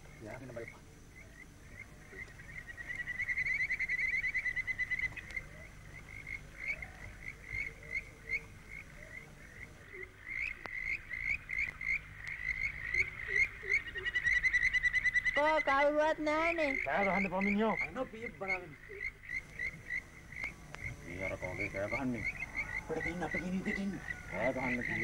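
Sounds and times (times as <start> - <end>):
frogs chirping: 0.0 - 25.0.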